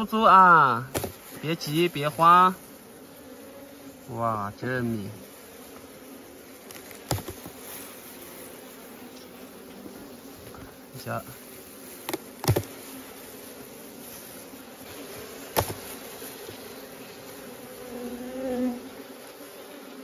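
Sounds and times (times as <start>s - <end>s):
bees buzzing: 0.0s - 20.0s
sharp knocks: 12.1s - 12.7s, 15.5s - 15.8s.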